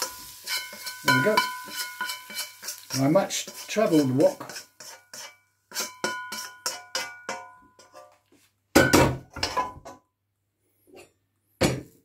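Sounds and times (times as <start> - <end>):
wok clattering on hob grate: 0.0 - 8.1, 8.7 - 10.0
spoon scraping and tapping wok: 0.0 - 8.4.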